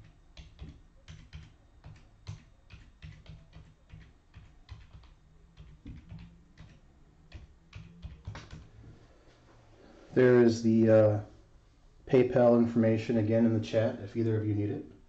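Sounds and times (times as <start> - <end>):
keyboard typing: 0.0 - 8.7.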